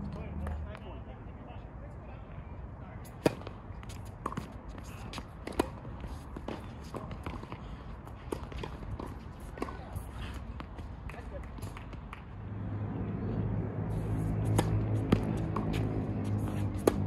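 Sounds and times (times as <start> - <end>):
tennis ball bouncing: 3.2 - 12.3, 14.2 - 17.0
tennis racket hitting ball: 14.2 - 17.0.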